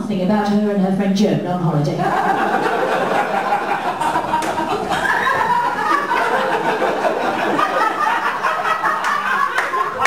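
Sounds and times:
audience laughing: 2.0 - 10.0.

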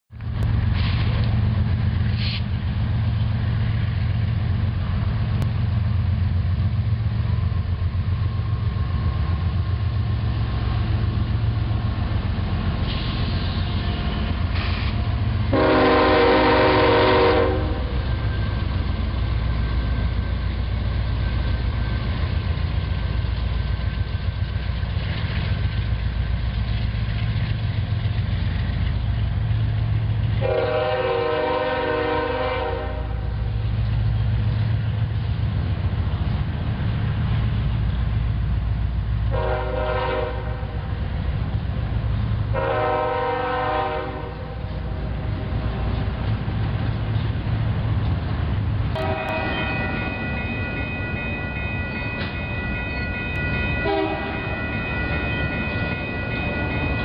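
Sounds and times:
diesel locomotive engine rumble: 0.1 - 57.0
freight cars rolling on rails: 0.1 - 57.0
train air horn blast: 15.5 - 18.0, 30.4 - 33.3, 39.3 - 40.8, 42.5 - 44.7, 49.0 - 49.8, 53.8 - 54.6.

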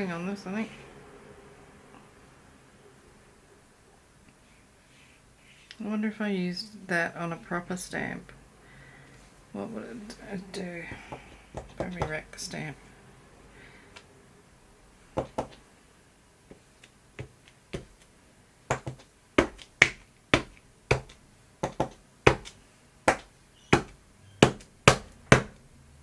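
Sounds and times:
stamp tapping on paper: 15.2 - 15.6, 18.7 - 25.5.

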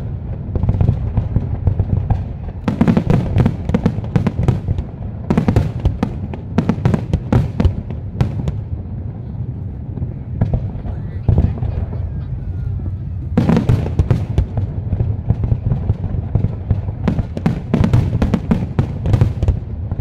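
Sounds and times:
fireworks bangs and crackles: 0.0 - 20.0
low rumble: 7.7 - 17.8.

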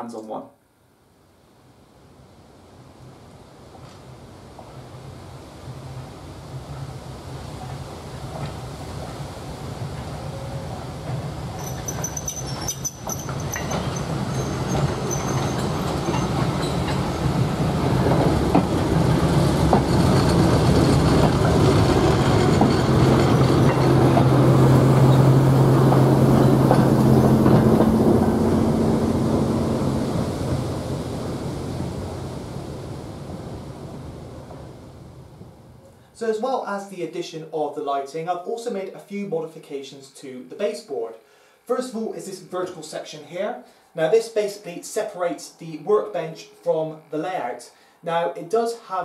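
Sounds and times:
model train running on track: 3.1 - 35.8.

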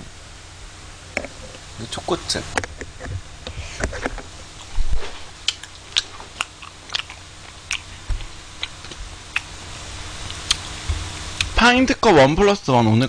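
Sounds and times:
chewing and spoon clicking: 5.4 - 7.9.

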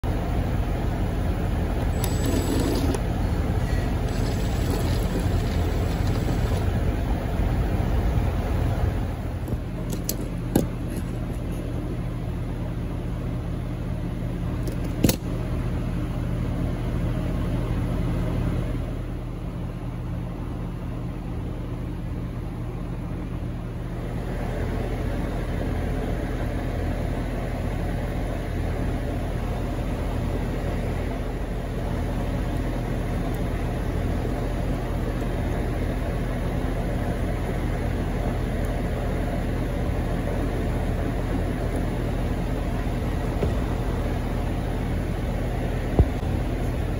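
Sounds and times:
steady mechanical hum: 0.0 - 46.9
sharp click: 14.6 - 15.3.

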